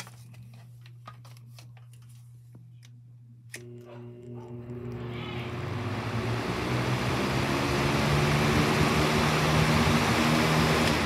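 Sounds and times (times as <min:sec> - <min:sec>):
fan motor hum: 0:00.0 - 0:11.0
rush of air from fan blades: 0:05.6 - 0:11.0.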